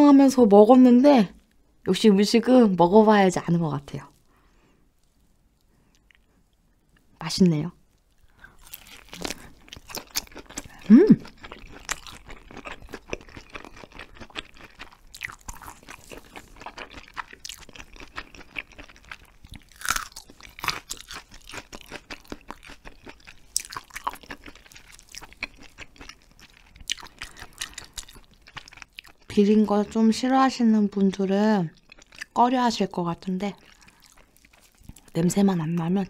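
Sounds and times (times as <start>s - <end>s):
wet chewing and crunching: 8.0s - 30.1s, 31.7s - 32.4s, 33.2s - 35.9s
person humming: 10.8s - 11.2s.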